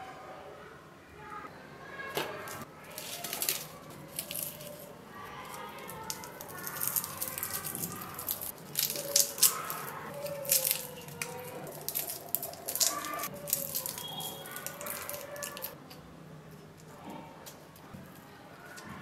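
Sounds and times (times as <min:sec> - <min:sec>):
shallot skins crackling: 0:02.1 - 0:18.9
skin bits ticking on steel plate: 0:05.4 - 0:15.8.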